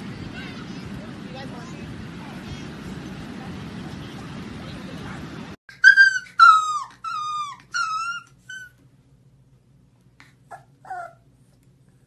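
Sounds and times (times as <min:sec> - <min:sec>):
puppy whining and howling: 0:05.7 - 0:08.8, 0:10.5 - 0:11.3.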